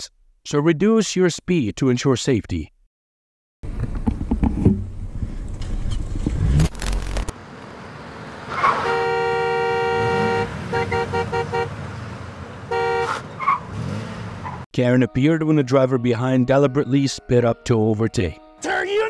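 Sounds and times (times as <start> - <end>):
engine and road noise: 3.6 - 14.7
vehicle horn honking: 8.7 - 11.8, 12.7 - 13.2.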